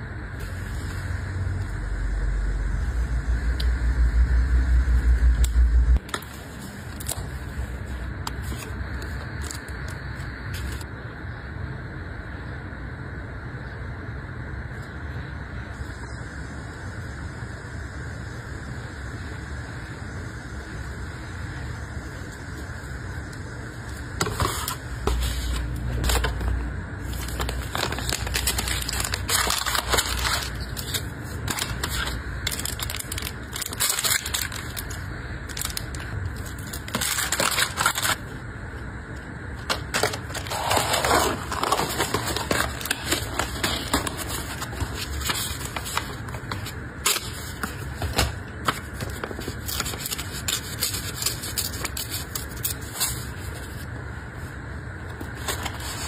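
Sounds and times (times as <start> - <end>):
paper rustling: 23.9 - 38.3, 39.6 - 53.9
plastic wrap crinkling: 24.2 - 38.4, 39.6 - 53.8.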